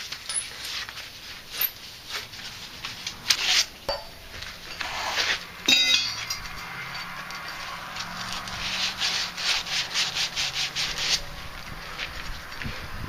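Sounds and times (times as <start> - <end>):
scraping on copper pipe: 0.0 - 12.4
metallic clinks: 0.2 - 0.8, 3.9 - 4.9, 5.6 - 8.2
sanding cloth rubbing pipe: 8.0 - 12.2.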